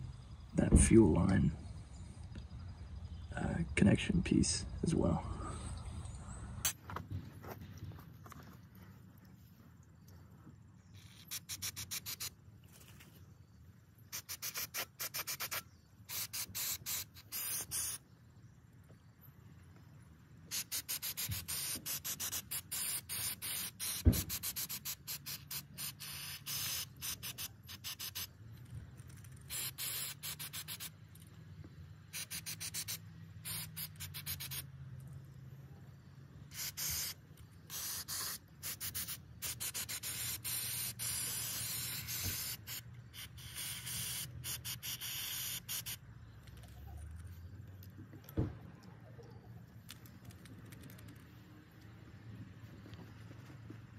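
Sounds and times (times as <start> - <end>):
aerosol spray hissing: 11.1 - 12.4, 14.1 - 18.0, 20.5 - 28.3, 29.5 - 31.0, 32.1 - 34.7, 36.5 - 46.0.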